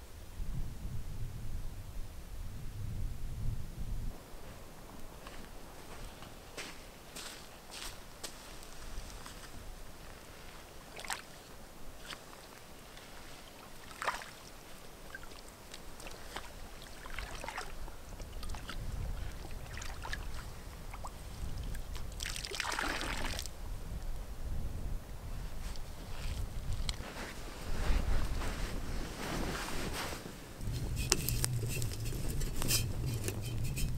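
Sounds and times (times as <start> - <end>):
wind rumbling on microphone: 0.0 - 6.6, 15.9 - 33.9
water splashing and sloshing: 10.8 - 23.5.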